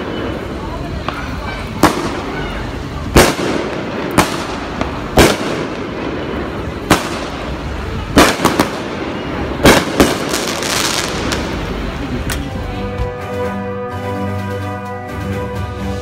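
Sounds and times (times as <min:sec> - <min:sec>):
fireworks bangs: 0:00.0 - 0:12.4
steady background noise: 0:00.0 - 0:16.0.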